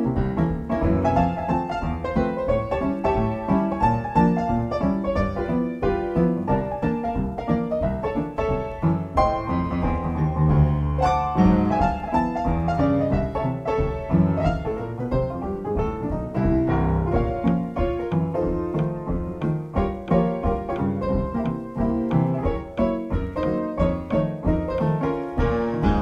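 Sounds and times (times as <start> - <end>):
instrumental piano music: 0.0 - 26.0.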